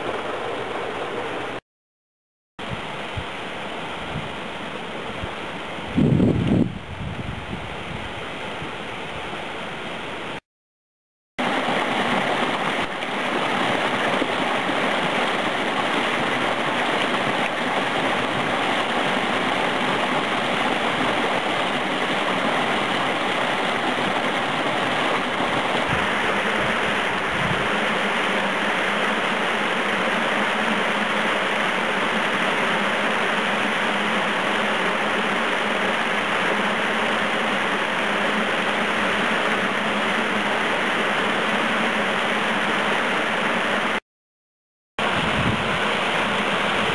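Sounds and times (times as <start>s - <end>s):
stream rushing over rocks: 0.0s - 1.6s, 11.4s - 44.0s, 45.0s - 46.9s.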